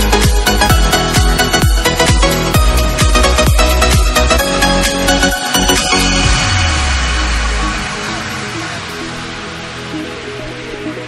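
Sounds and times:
electronic dance music: 0.0 - 11.0
deep kick drum hits: 0.3 - 4.4, 6.2 - 8.2
heavy held bass note: 5.4 - 9.9.

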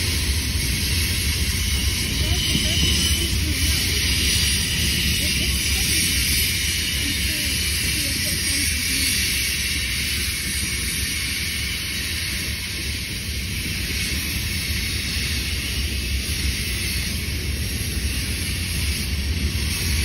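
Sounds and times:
freight train rolling on rails: 0.0 - 20.0.

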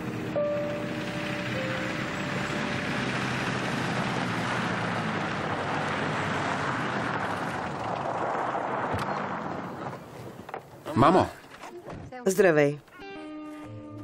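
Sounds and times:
pickup truck engine running: 0.0 - 10.8
tyres crunching on gravel: 0.6 - 10.8.

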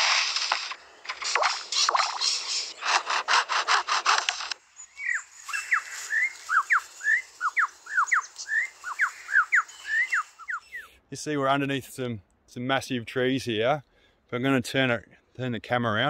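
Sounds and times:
bird whistling sharp notes: 4.9 - 10.9.

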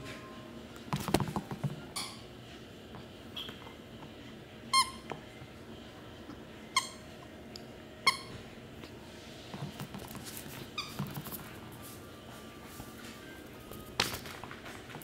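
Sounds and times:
squeaky dog toy squeaking: 4.7 - 5.0, 6.8 - 7.0, 8.0 - 8.4, 10.7 - 11.0.

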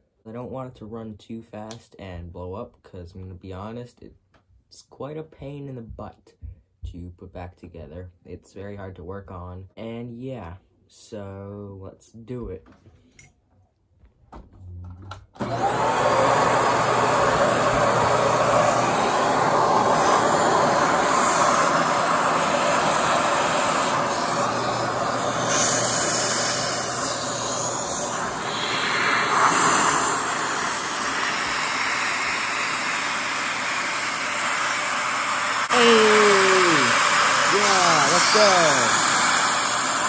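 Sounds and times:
vacuum cleaner running: 15.4 - 40.0.

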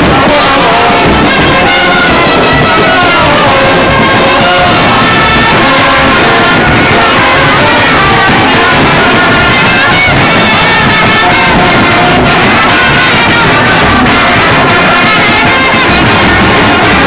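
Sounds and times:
bass drum: 0.0 - 17.0
side drum: 0.0 - 17.0
trombones and trumpets melody: 0.0 - 17.0.

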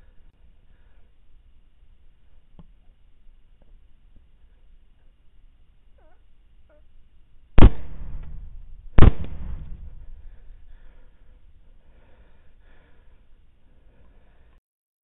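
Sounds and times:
rifle shots echoing: 7.6 - 10.3.

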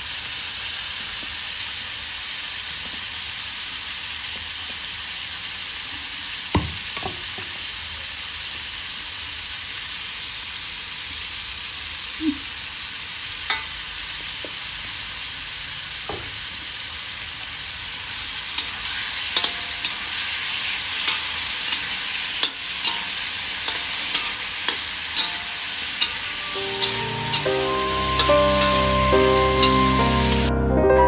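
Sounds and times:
frying hiss: 0.0 - 30.5
spatula scraping wok: 18.2 - 30.5.

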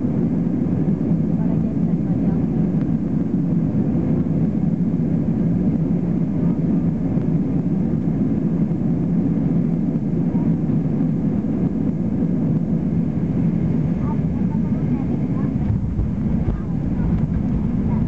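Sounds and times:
airplane cabin drone: 0.0 - 18.0
air rushing past fuselage: 15.6 - 18.0.

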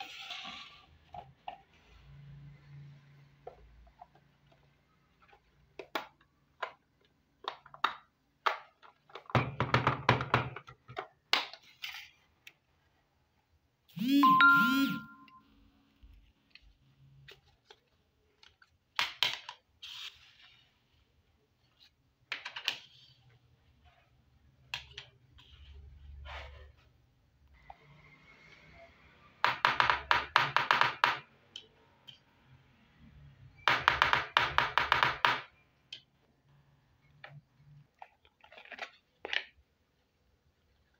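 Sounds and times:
electronic toy bell tones: 14.0 - 15.6.

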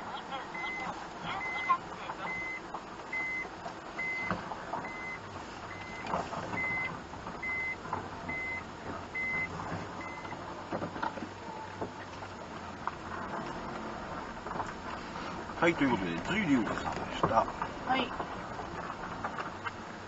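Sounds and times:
reverse warning beeps: 0.4 - 10.4.

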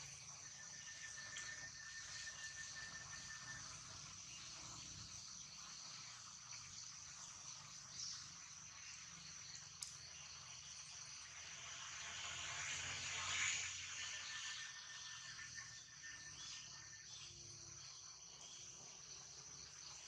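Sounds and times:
insects droning: 0.0 - 20.0
hiss: 9.1 - 15.4.

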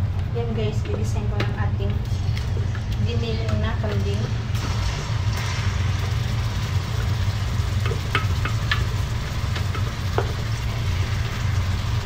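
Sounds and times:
steady low hum: 0.0 - 12.0
faint sizzling with light pops: 0.1 - 12.0.

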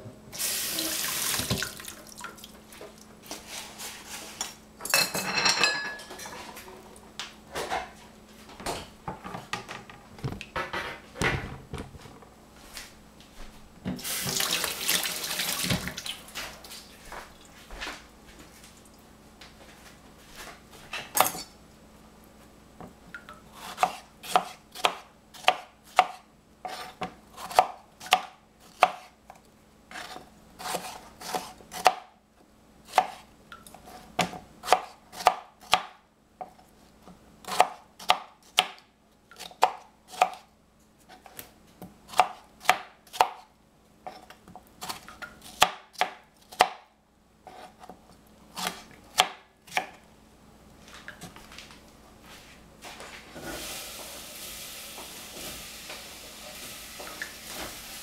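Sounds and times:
tap water running into sink: 0.4 - 2.6, 14.0 - 16.2, 54.9 - 57.9.

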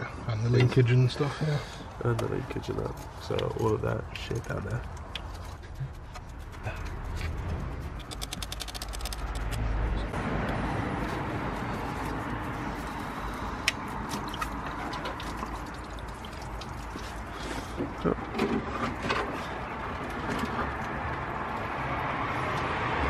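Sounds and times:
clicks and rattles of hoses: 7.9 - 9.6, 13.3 - 21.2.

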